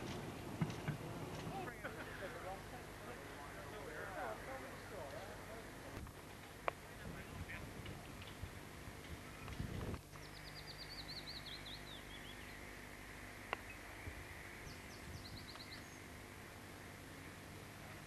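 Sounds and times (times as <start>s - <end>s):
faint background noise: 0.0s - 18.0s
songbird singing: 9.1s - 18.0s.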